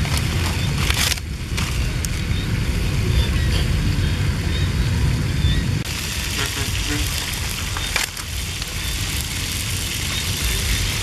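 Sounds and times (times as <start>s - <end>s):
wood fire crackling: 0.0s - 3.1s, 5.8s - 11.0s
low rumble: 0.0s - 11.0s
oil sizzling in a wok: 5.8s - 11.0s.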